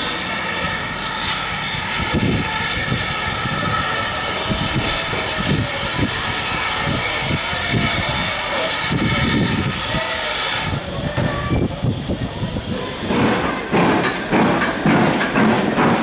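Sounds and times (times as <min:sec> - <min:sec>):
steam locomotive whine and hiss: 0:00.0 - 0:16.0
low rumbling thuds: 0:13.0 - 0:16.0.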